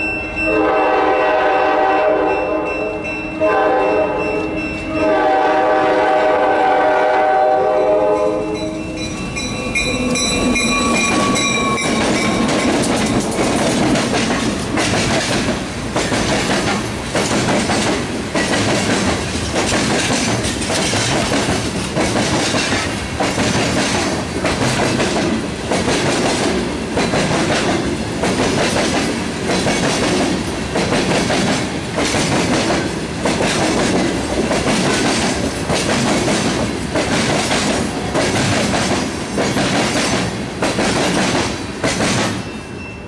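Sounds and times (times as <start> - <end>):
train wheels clacking on rail joints: 8.6 - 42.5.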